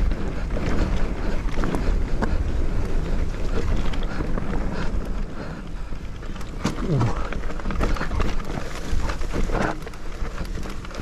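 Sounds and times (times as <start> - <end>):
bike rattling over stones: 0.0 - 11.0
wind buffeting microphone: 0.0 - 11.0
tyres crunching on dirt: 6.0 - 11.0.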